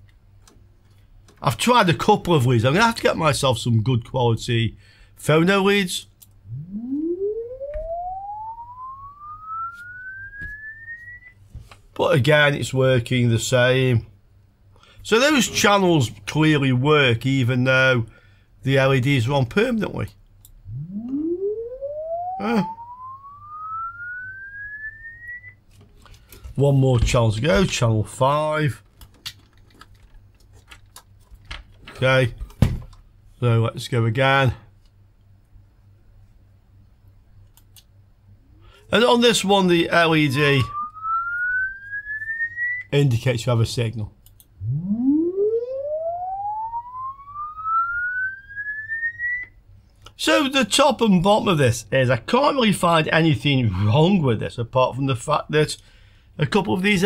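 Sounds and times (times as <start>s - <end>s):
low mains hum: 0.0s - 57.0s
low hum: 6.2s - 11.4s, 20.4s - 25.6s, 39.7s - 42.9s, 44.3s - 49.7s
rising sine tone: 6.4s - 11.4s, 20.6s - 25.6s, 39.9s - 42.9s, 44.6s - 49.6s.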